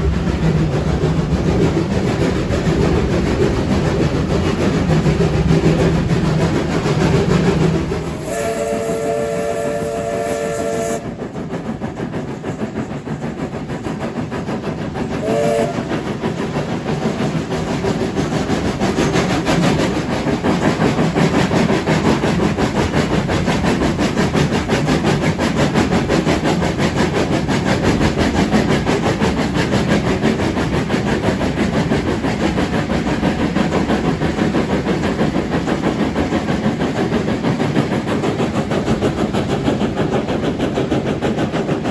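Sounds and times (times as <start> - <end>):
steam train running on rails: 0.0 - 41.9
steam locomotive whistle: 8.2 - 11.2, 15.2 - 15.9.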